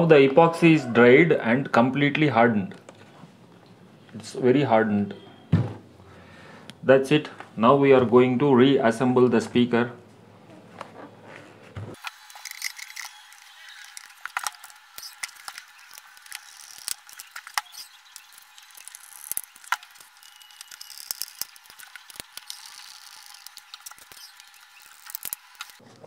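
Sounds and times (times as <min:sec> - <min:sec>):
screwdriver working on plastic: 0:12.0 - 0:25.8.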